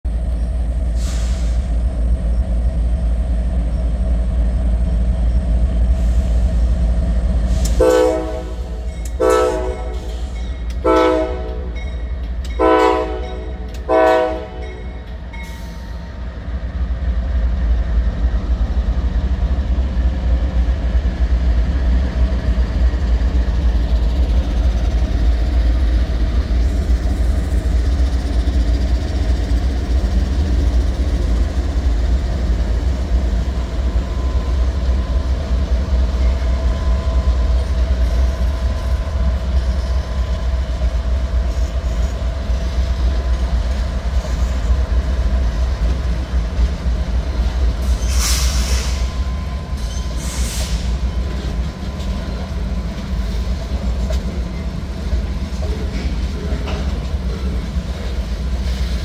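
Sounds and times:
diesel locomotive rumble passing: 0:00.0 - 0:59.0
locomotive air horn blasts: 0:07.6 - 0:10.1, 0:10.8 - 0:11.8, 0:12.6 - 0:14.7.

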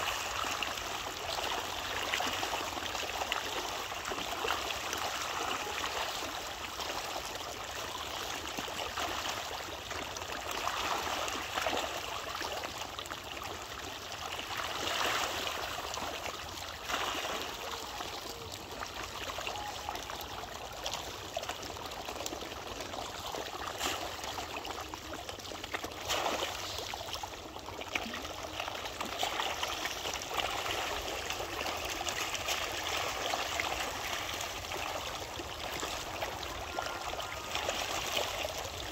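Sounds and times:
churning water: 0:00.0 - 0:38.9
fish splashing: 0:14.4 - 0:38.9.

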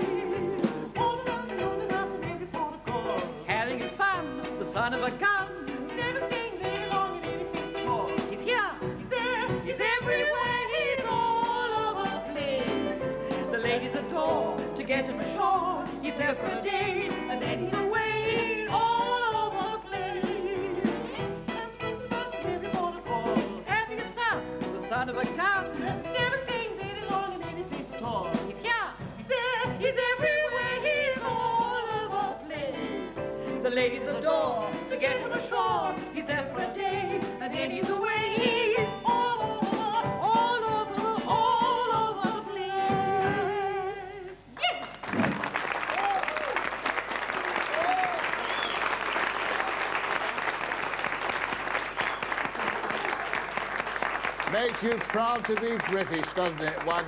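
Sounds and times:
two people singing operatically: 0:00.0 - 0:44.8
band playing: 0:00.0 - 0:57.0.

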